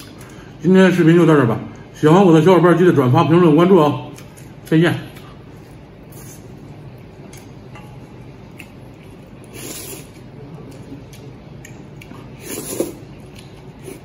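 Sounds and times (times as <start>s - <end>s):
man slurping noodles: 12.4s - 13.1s.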